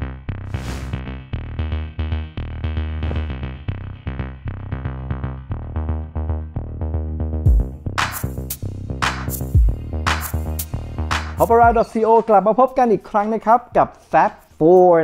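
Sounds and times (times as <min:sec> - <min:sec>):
deep bass: 0:00.0 - 0:12.1
heavy bass hit: 0:02.9 - 0:04.0, 0:07.5 - 0:11.8
drum-machine beat: 0:07.5 - 0:12.8.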